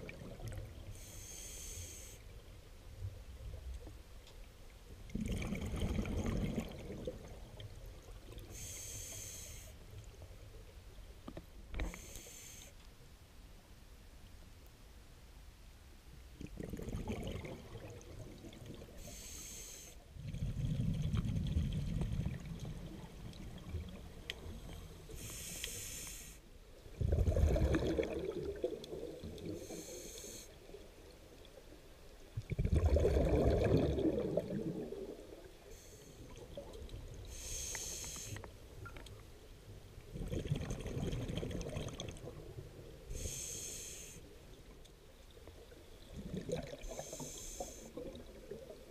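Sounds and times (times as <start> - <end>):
regulator inhale hiss: 0.9 - 2.4, 8.4 - 9.9, 11.8 - 12.8, 18.9 - 20.1, 25.1 - 26.5, 29.5 - 30.7, 35.6 - 36.4, 37.2 - 38.5, 43.0 - 44.4, 46.8 - 48.1
low underwater bubbling: 5.1 - 7.7, 16.4 - 19.0, 20.2 - 24.7, 26.9 - 29.6, 32.4 - 35.5, 40.0 - 42.7, 45.6 - 47.0.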